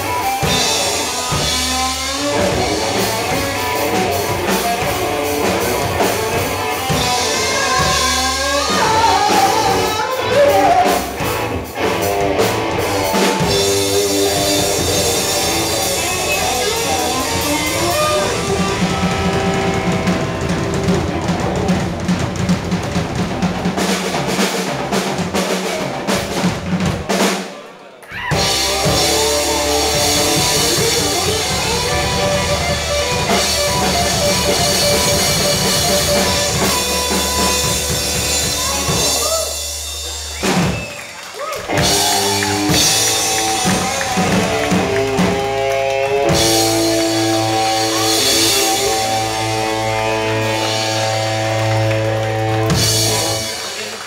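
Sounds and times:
live rock band playing: 0.0s - 54.0s
held guitar notes: 10.9s - 22.9s.

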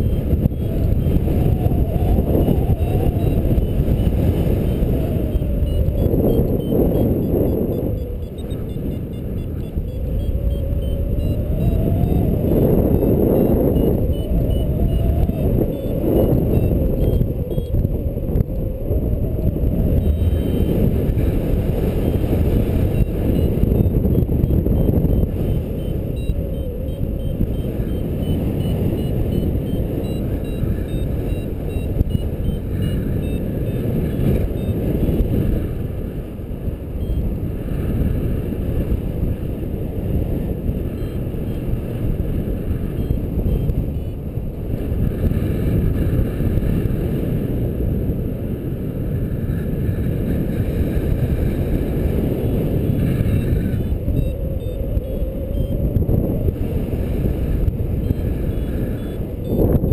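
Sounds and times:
variometer short high beeps: 0.0s - 17.9s, 19.7s - 35.2s, 37.0s - 37.3s, 40.9s - 44.2s, 53.0s - 56.0s, 57.9s - 59.9s
wind buffeting microphone: 0.0s - 59.9s.

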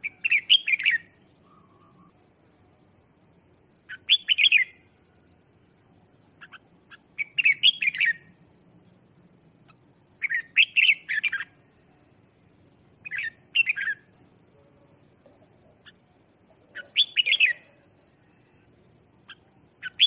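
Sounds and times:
bird singing warbling phrases: 0.0s - 2.3s, 3.8s - 4.9s, 6.2s - 8.4s, 9.5s - 12.4s, 13.0s - 14.2s, 14.9s - 20.0s.

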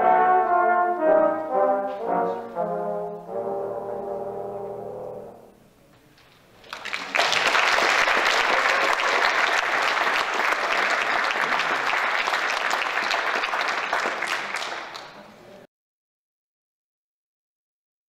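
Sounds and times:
audience applause: 6.6s - 15.4s.

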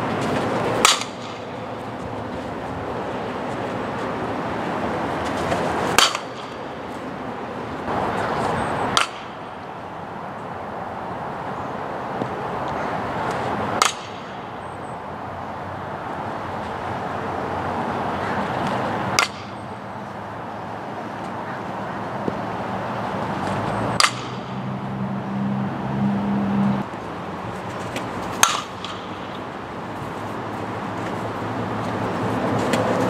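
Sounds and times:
outdoor background noise: 0.0s - 33.0s
bat cracking on ball: 0.8s - 1.5s, 5.9s - 6.6s, 8.9s - 9.4s, 13.3s - 14.4s, 18.6s - 19.6s, 23.4s - 24.5s, 27.9s - 29.4s.

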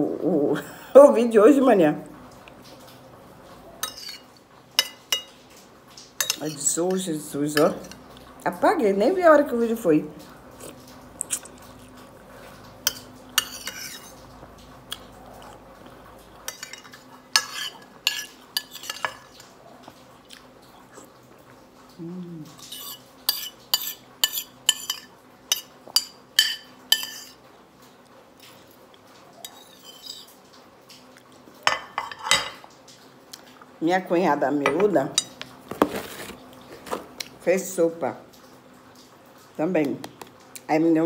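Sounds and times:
metal spoon scraping glass bowl: 3.8s - 4.3s, 12.9s - 14.2s, 16.5s - 19.3s, 22.6s - 27.4s, 29.5s - 30.3s.

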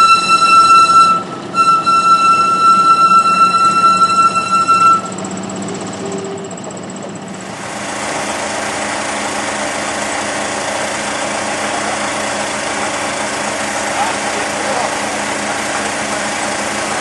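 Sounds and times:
music: 0.0s - 5.2s
engine idling: 0.0s - 17.0s.

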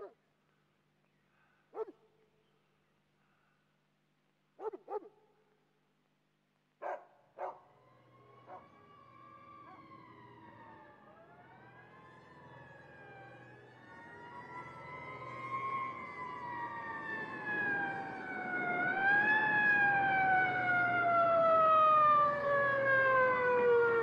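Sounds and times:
dog barking: 1.7s - 2.0s, 4.6s - 5.2s, 6.8s - 7.7s, 8.5s - 8.7s
police siren wailing: 7.7s - 24.0s.

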